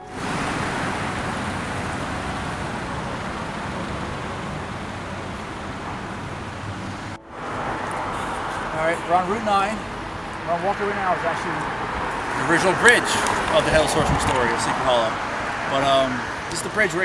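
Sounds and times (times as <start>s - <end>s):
road traffic noise: 0.0s - 17.0s.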